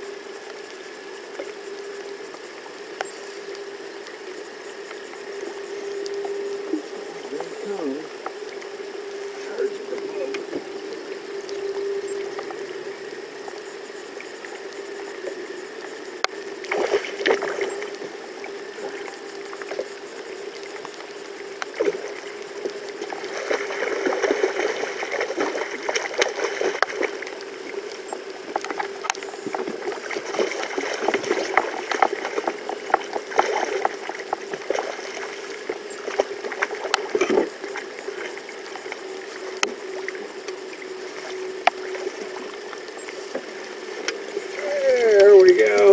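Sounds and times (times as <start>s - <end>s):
steady hum: 0.0s - 45.9s
fish thrashing and splashing: 16.6s - 18.0s, 21.6s - 39.1s.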